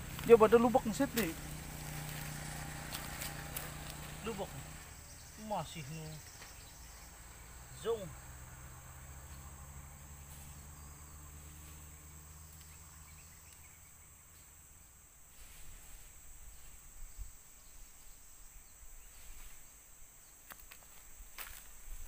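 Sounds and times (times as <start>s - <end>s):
crickets droning: 0.0s - 22.0s
faint rustles: 15.2s - 17.4s, 19.1s - 19.8s.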